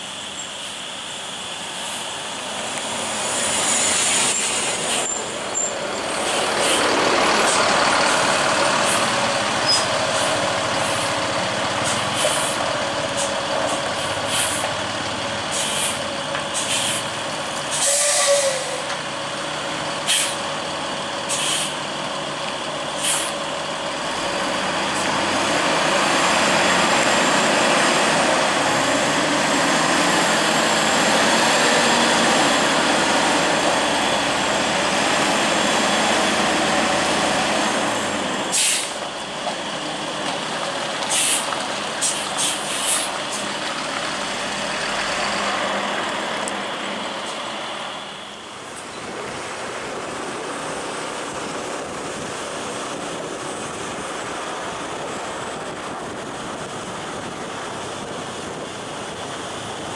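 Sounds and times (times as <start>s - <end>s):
engine and road noise: 0.0s - 59.9s
air brakes hissing: 3.0s - 11.2s, 11.8s - 14.8s, 15.5s - 18.9s, 20.0s - 20.4s, 21.3s - 21.9s, 22.9s - 23.4s, 38.5s - 39.0s, 41.1s - 43.4s.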